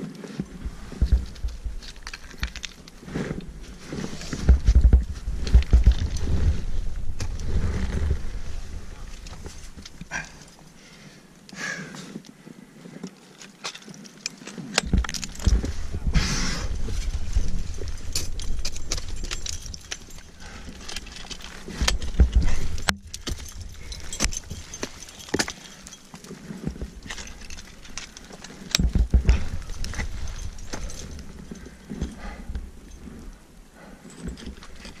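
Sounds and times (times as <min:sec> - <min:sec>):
low rumble: 0:14.9 - 0:24.9.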